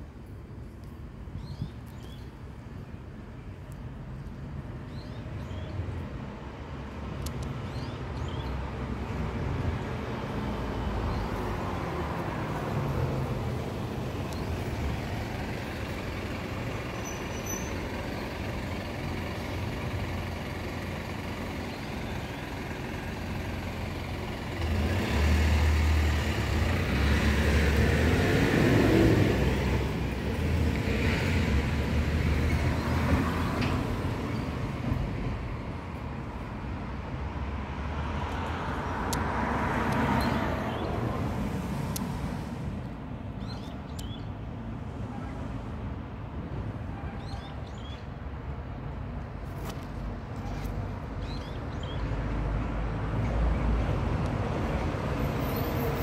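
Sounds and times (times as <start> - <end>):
road traffic noise: 0.0 - 56.0
heavy vehicle passing: 22.5 - 35.6.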